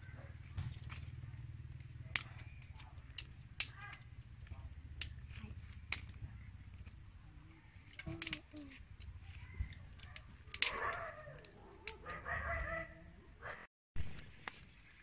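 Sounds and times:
dry twigs snapping: 0:01.9 - 0:07.0, 0:07.8 - 0:12.2.

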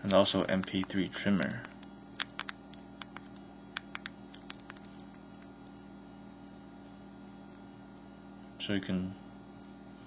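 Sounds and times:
low electrical hum: 0:00.0 - 0:10.0
fingers tapping a touchscreen: 0:00.1 - 0:05.5.

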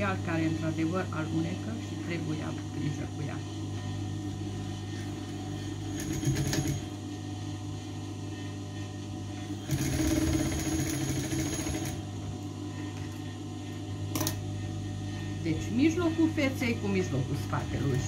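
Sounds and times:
sewing machine stitching: 0:06.0 - 0:06.8, 0:09.6 - 0:12.0.

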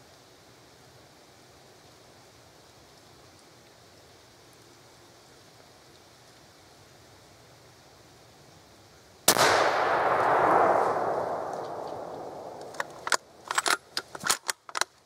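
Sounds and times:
gunshot echoing: 0:09.3 - 0:13.6
sharp clicks and snaps: 0:11.4 - 0:15.0.

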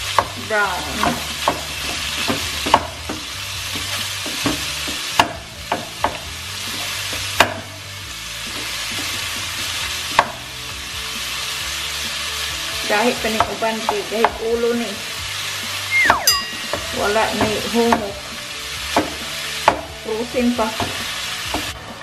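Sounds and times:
meat sizzling in a pan: 0:00.0 - 0:22.0
wooden spoon knocking on pan: 0:01.0 - 0:06.3, 0:16.3 - 0:18.2, 0:19.0 - 0:19.9.

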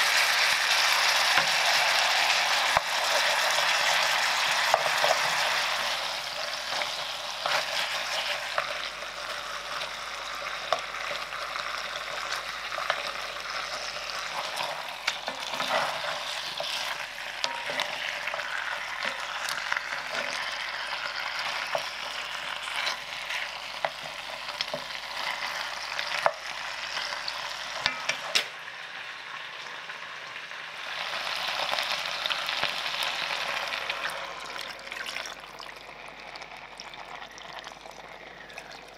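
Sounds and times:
meat sizzling in oil: 0:00.0 - 0:38.9
wooden spatula scraping pot: 0:06.7 - 0:09.0, 0:12.8 - 0:26.4.

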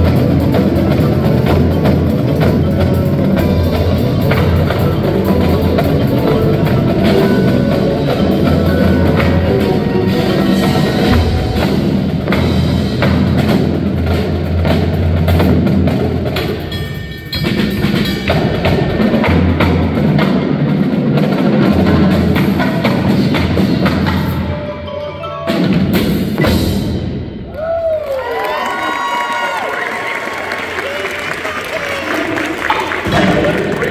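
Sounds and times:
marimba and vibraphone: 0:00.0 - 0:13.9, 0:23.2 - 0:26.6
marching drums: 0:00.0 - 0:24.5
drum kit: 0:00.0 - 0:24.8, 0:25.5 - 0:28.0.

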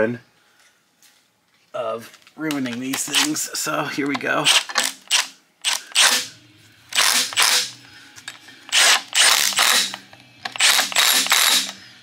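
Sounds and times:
impact wrench hammering: 0:07.0 - 0:07.8, 0:08.7 - 0:11.8.

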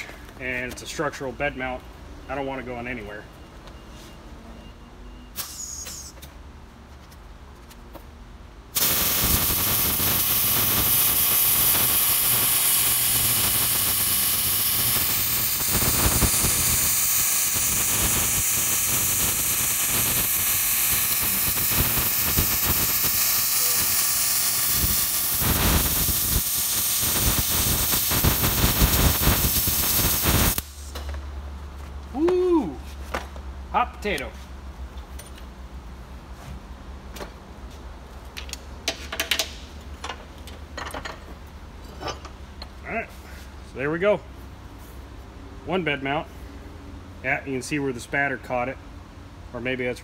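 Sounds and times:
welder arc crackling sizzle: 0:08.8 - 0:31.0.

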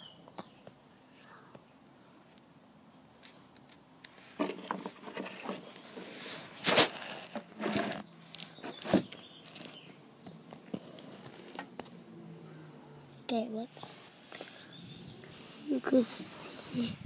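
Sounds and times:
phone handling rustles and scrapes: 0:04.1 - 0:09.8.

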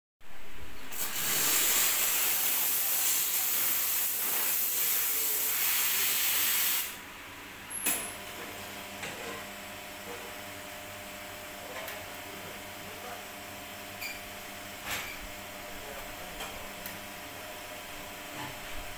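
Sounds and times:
quiet steady machine sound: 0:00.2 - 0:18.9
espresso machine steam hiss: 0:00.9 - 0:07.0.

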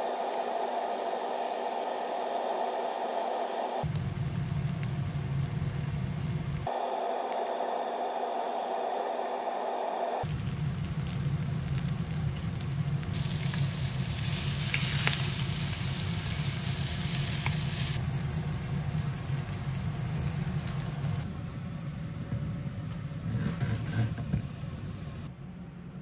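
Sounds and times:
fish sizzling in a frying pan: 0:10.2 - 0:21.2.

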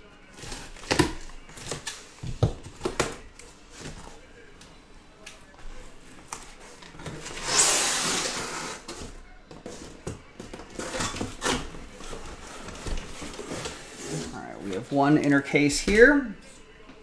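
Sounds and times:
cardboard scraping and rustling: 0:10.7 - 0:14.4.

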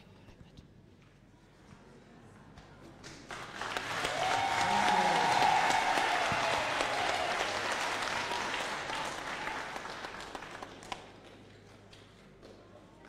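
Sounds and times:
congregation applauding: 0:03.1 - 0:12.4.

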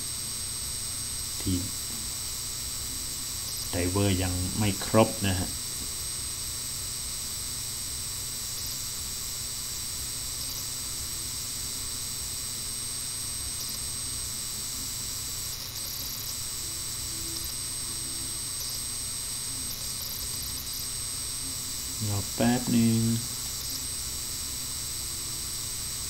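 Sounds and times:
faint high-pitched whine: 0:00.0 - 0:26.0
background hiss: 0:01.3 - 0:06.0, 0:14.8 - 0:26.0.

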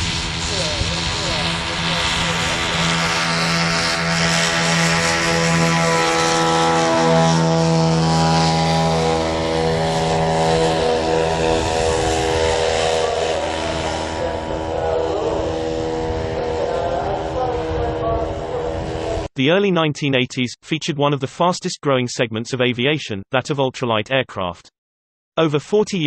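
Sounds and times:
small aircraft engines droning: 0:00.0 - 0:19.3.

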